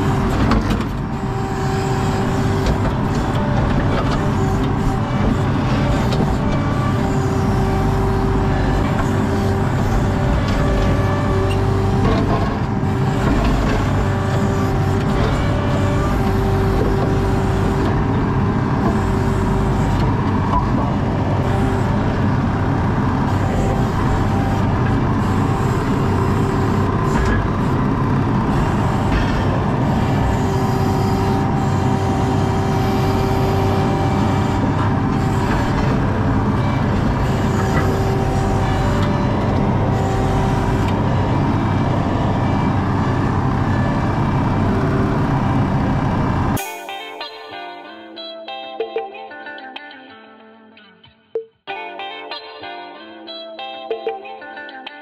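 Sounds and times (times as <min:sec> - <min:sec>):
diesel engine running under load: 0:00.0 - 0:46.6
high whine: 0:00.0 - 0:48.8.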